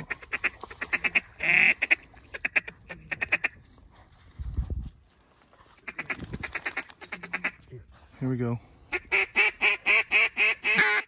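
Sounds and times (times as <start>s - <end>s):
duck quacking: 0.0s - 3.6s, 5.8s - 7.6s, 8.9s - 11.0s.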